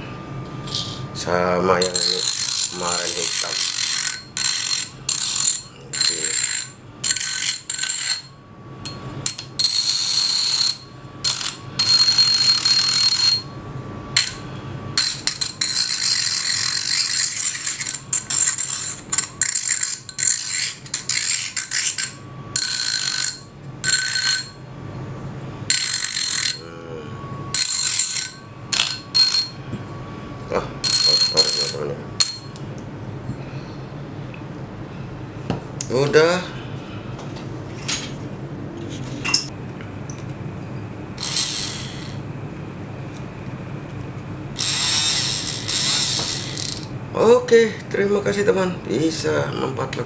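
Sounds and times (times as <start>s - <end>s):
rotary tool grinding metal: 1.8s - 13.5s, 14.2s - 14.4s, 15.0s - 24.6s, 25.7s - 26.7s, 27.5s - 29.6s, 30.8s - 32.6s, 41.2s - 42.2s, 44.6s - 46.9s.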